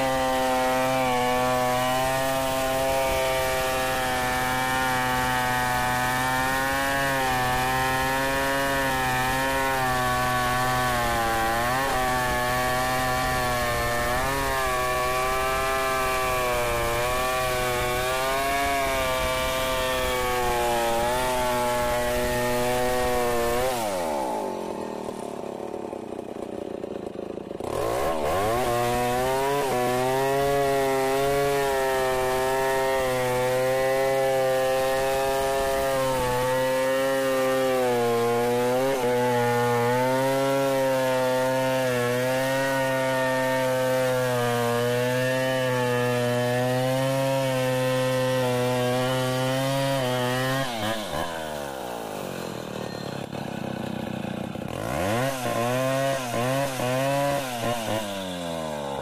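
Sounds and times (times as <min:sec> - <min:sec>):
chainsaw cutting log: 0:00.0 - 0:59.0.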